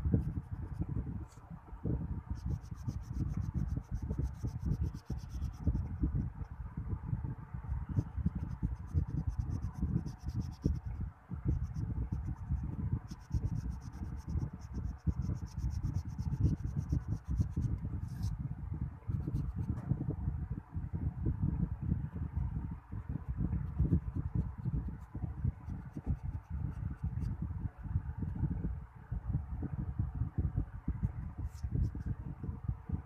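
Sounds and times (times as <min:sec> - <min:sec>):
crayon scribbling on paper: 0:02.3 - 0:06.0, 0:08.0 - 0:18.3.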